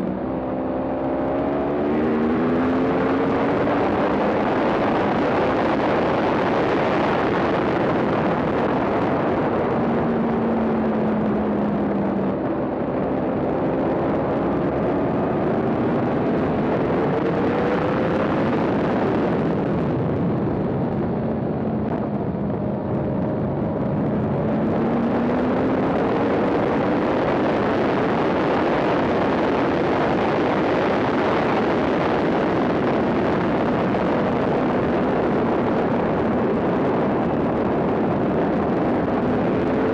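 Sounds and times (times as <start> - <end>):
motorcycle engine revving hard: 0.0 - 10.6
wind rush on microphone: 0.0 - 39.9.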